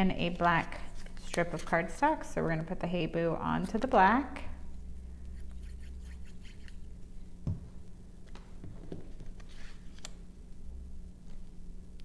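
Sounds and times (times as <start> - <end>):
soft knock: 7.4 - 7.7.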